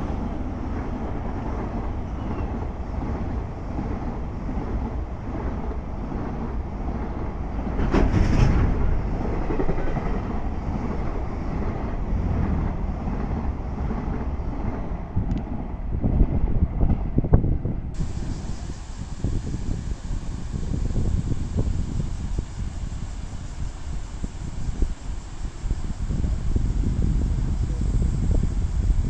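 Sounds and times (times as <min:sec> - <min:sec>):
train wheels rumbling on rails: 0:00.0 - 0:29.0.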